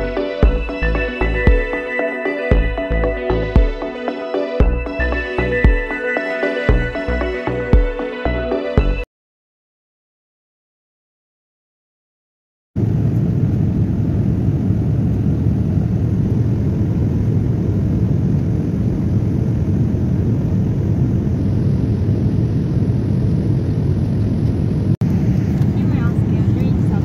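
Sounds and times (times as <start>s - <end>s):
jet airliner cabin rumble: 12.8s - 27.0s.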